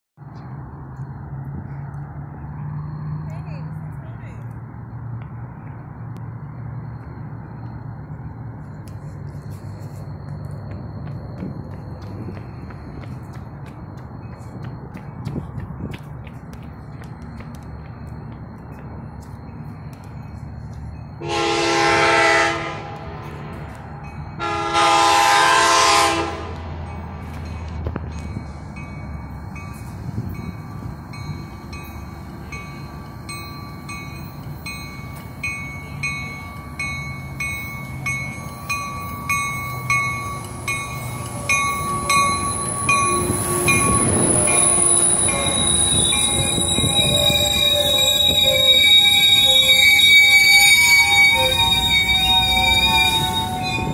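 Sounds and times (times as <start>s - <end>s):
train wheels clicking: 8.6s - 21.2s, 26.6s - 53.9s
train horn blasts: 21.2s - 23.4s, 24.4s - 26.8s, 41.4s - 53.9s
high steady brake squeal: 28.3s - 53.9s.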